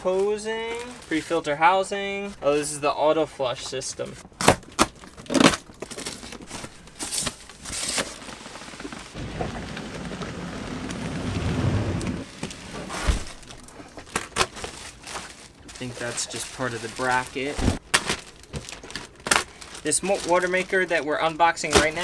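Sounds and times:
plastic wrapping crinkling: 0:00.1 - 0:01.5, 0:04.2 - 0:11.5, 0:12.2 - 0:22.0
packing tape and cardboard ripping: 0:04.3 - 0:11.3, 0:12.0 - 0:22.0.

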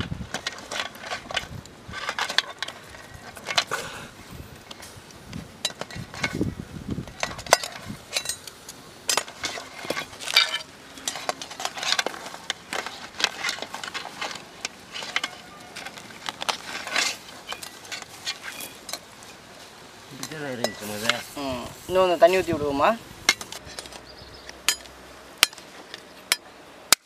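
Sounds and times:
metal skimmer scraping metal pot: 0:09.1 - 0:19.4.

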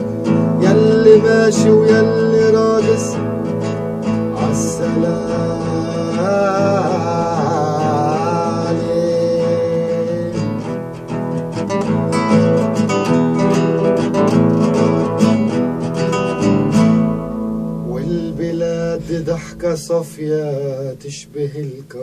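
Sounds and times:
strummed classical guitar: 0:00.0 - 0:22.0
man singing held notes: 0:17.8 - 0:22.0.

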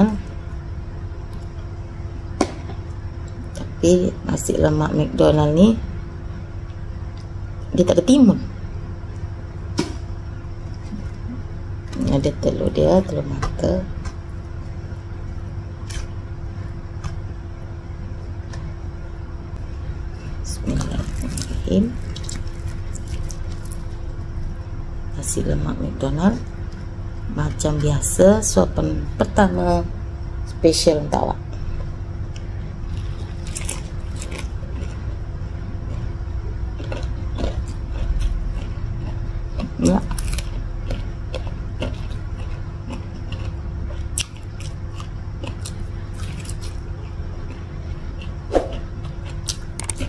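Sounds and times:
steady low hum: 0:00.0 - 0:50.0
close chewing of rice: 0:20.2 - 0:24.6, 0:31.5 - 0:50.0.

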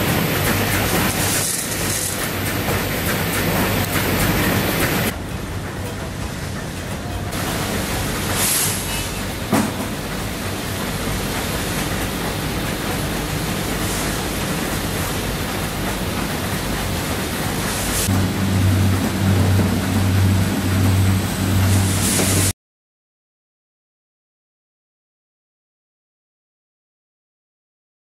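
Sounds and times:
factory machinery din: 0:00.0 - 0:22.5
low hum: 0:18.1 - 0:22.5.

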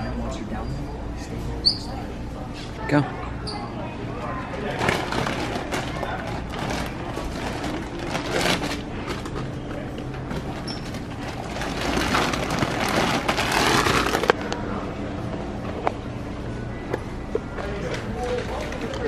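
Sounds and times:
steady low hum: 0:00.0 - 0:19.0
bags rustling and scraping: 0:04.7 - 0:09.6, 0:10.2 - 0:14.4.

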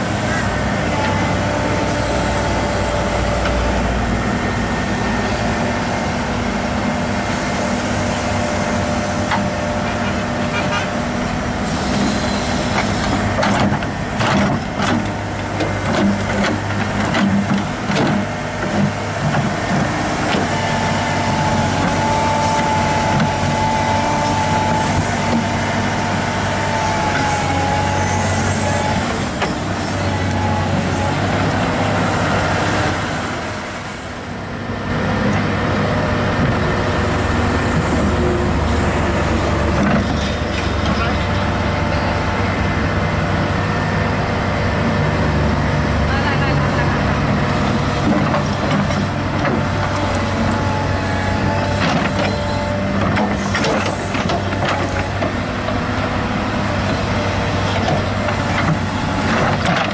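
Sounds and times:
excavator diesel engine under load: 0:00.0 - 0:59.9.

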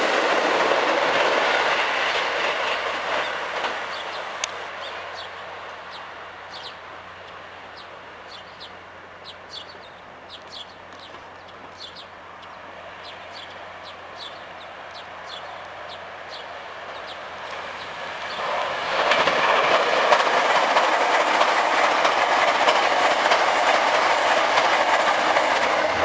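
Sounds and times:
small birds chirping: 0:02.6 - 0:19.8.

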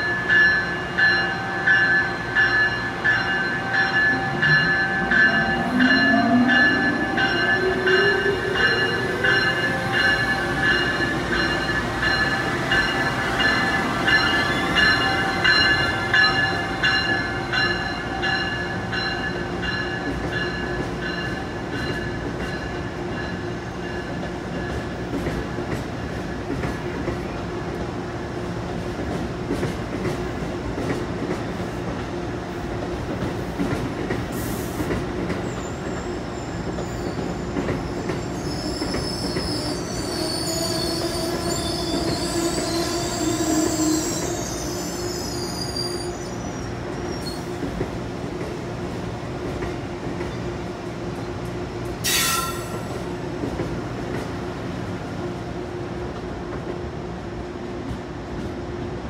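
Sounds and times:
electric locomotive motors whining: 0:00.0 - 0:20.0
train wheels on rails: 0:00.0 - 0:59.0
bell ringing: 0:00.3 - 0:21.2.

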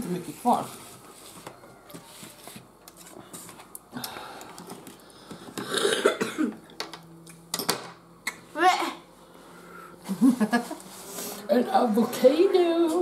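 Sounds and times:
person coughing: 0:05.6 - 0:06.6.

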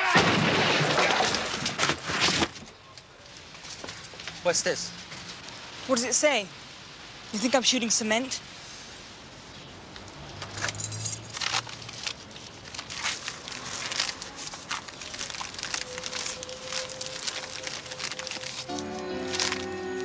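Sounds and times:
bag crinkling and rustling: 0:10.5 - 0:20.0.

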